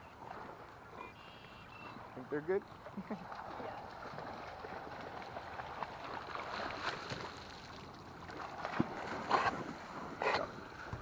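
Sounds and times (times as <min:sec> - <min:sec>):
dogs splashing in water: 0:02.8 - 0:11.0.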